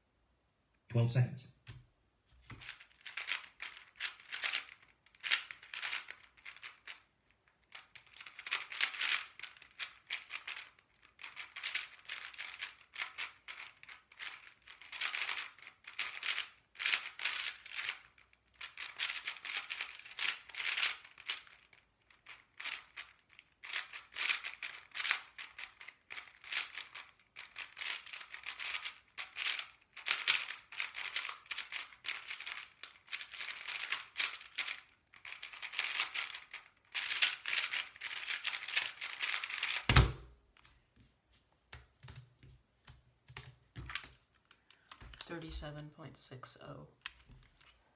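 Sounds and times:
puzzle cube plastic clicking: 2.5s - 40.1s.

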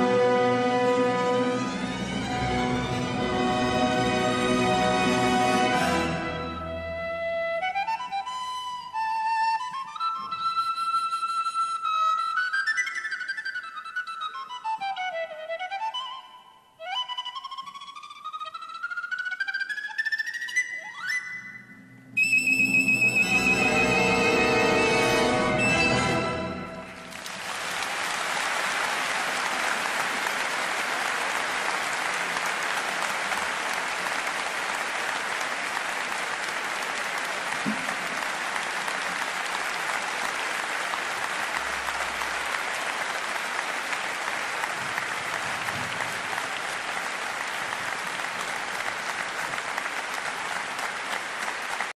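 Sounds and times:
audience applauding: 22.8s - 51.9s.

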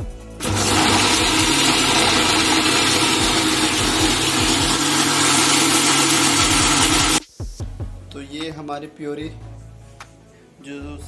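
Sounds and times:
mixer grinder motor running: 0.4s - 7.2s.

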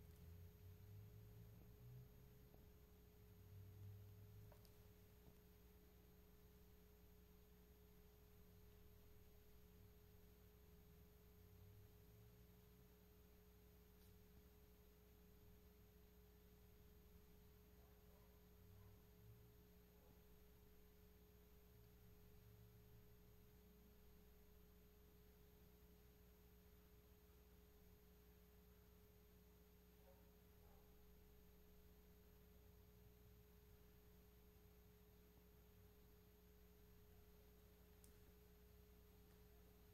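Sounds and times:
low hum: 0.0s - 20.5s.

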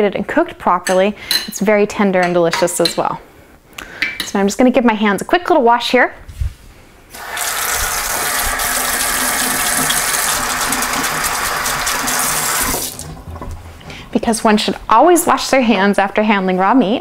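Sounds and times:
hands washing under water: 7.1s - 14.1s
tap water running: 7.1s - 14.3s.

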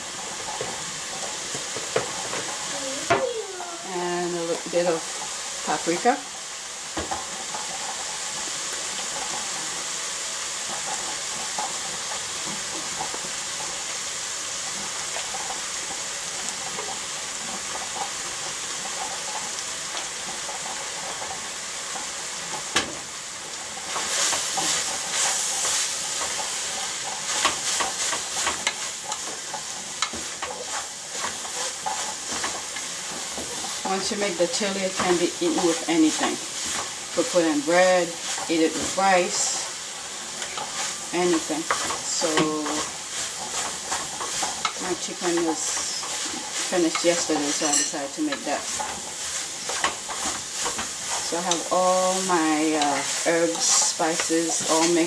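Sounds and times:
meat sizzling in a pot: 0.0s - 55.0s
spoon scraping a pot: 46.0s - 48.9s.

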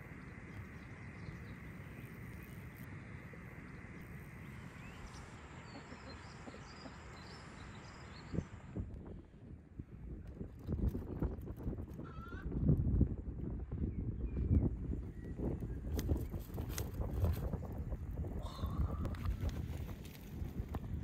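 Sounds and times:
faint bird chirps: 0.0s - 8.6s.

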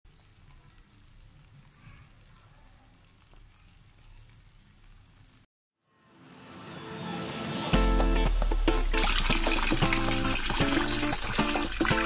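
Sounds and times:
soup simmering in a pot: 0.1s - 5.5s, 9.0s - 12.0s.

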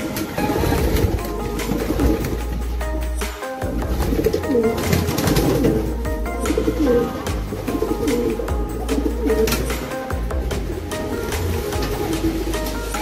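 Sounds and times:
background music: 0.0s - 13.0s
pigeons cooing: 0.0s - 13.0s.

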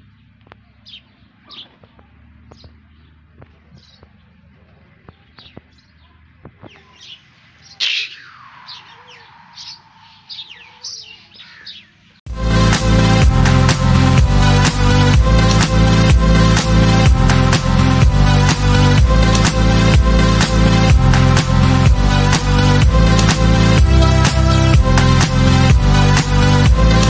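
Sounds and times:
small birds chirping: 0.0s - 12.2s.

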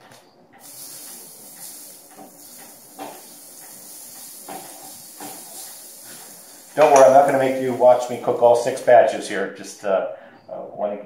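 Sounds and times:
pancake batter sizzling: 0.6s - 9.2s.

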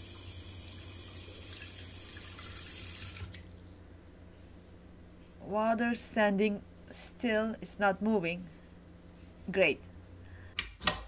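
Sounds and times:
tap water running into sink: 0.0s - 3.4s.

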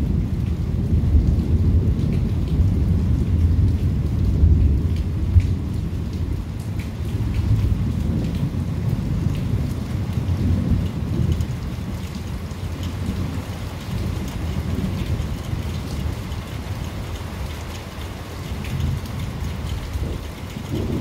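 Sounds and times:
raindrops ticking close by: 0.0s - 21.0s
steady rain: 0.0s - 21.0s
thunder rumbling: 7.1s - 16.9s, 18.5s - 21.0s.

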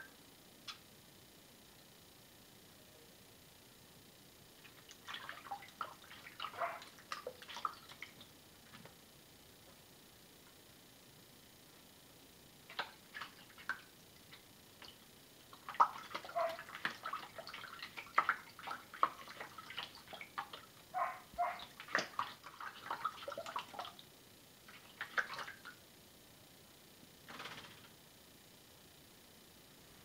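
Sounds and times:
cat pawing water in a bowl: 4.7s - 8.2s, 12.7s - 24.0s, 24.7s - 25.7s.

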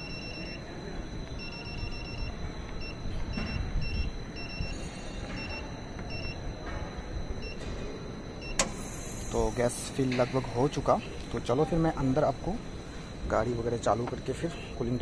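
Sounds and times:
keypad beeps: 0.0s - 8.8s.

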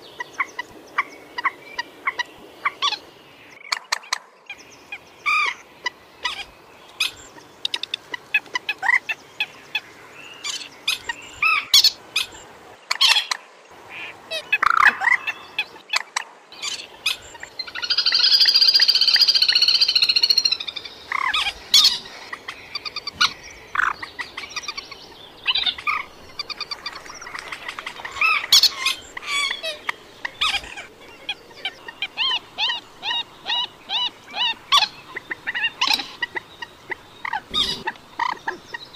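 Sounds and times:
moorhen calls: 16.6s - 38.9s.

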